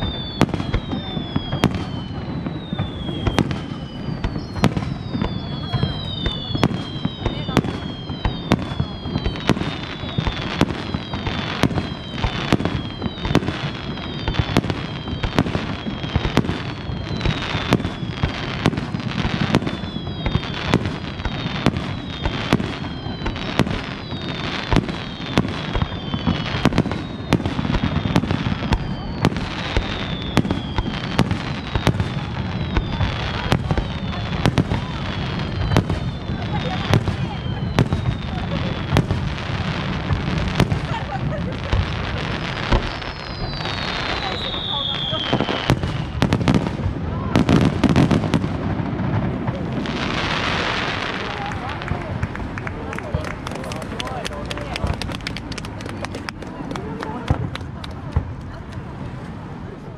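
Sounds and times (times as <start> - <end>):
falling firework whistles: 0.0 - 52.0.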